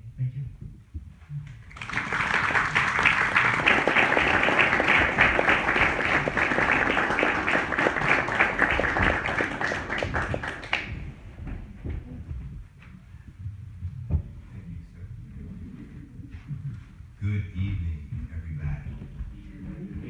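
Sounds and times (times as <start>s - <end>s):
audience applauding: 1.6s - 11.2s.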